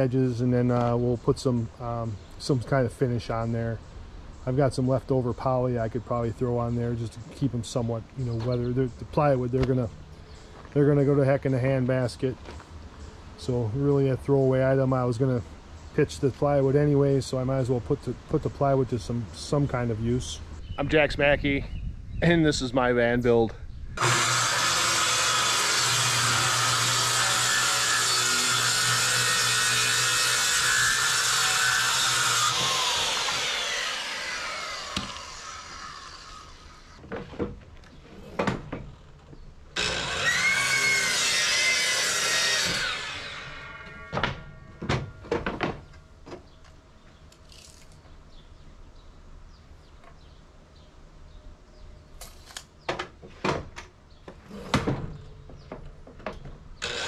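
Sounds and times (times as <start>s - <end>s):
circular saw cutting plywood: 24.0s - 37.0s, 39.8s - 45.1s, 56.8s - 57.0s
miter saw crosscutting plywood: 24.0s - 37.0s, 39.8s - 45.5s, 56.8s - 57.0s.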